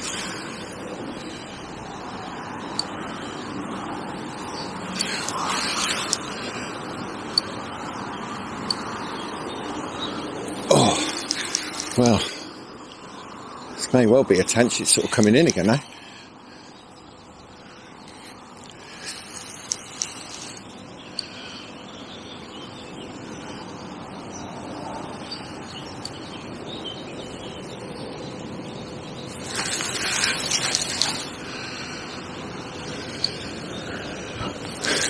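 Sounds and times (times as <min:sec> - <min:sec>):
lakeside background noise: 0:00.0 - 0:35.0
noisy rush: 0:00.0 - 0:35.0
sharp clicks: 0:10.6 - 0:12.1.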